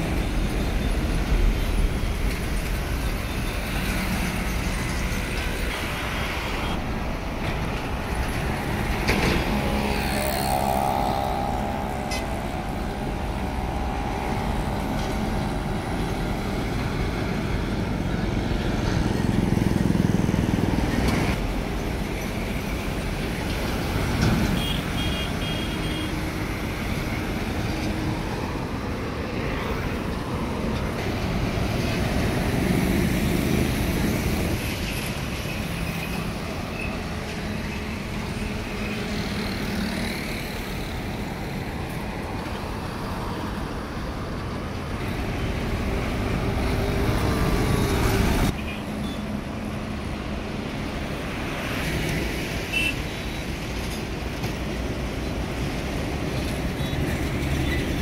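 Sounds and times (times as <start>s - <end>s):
highway traffic rumble: 0.0s - 58.0s.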